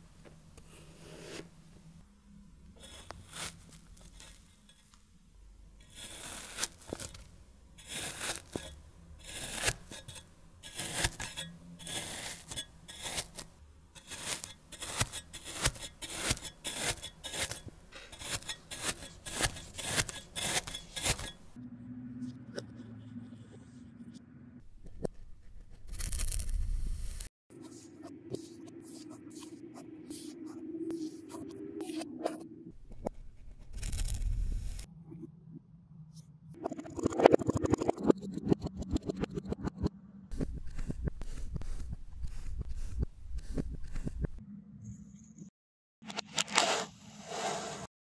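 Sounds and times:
blade slicing through sand: 0:02.8 - 0:04.4, 0:05.9 - 0:21.5.

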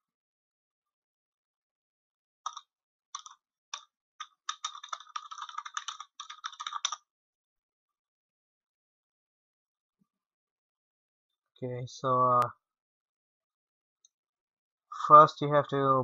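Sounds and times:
computer keyboard typing: 0:03.2 - 0:07.0.

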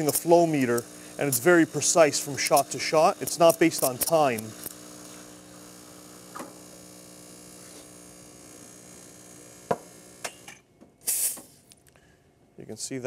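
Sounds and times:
espresso machine pump humming: 0:00.0 - 0:10.5
brief hiss: 0:11.0 - 0:11.7.

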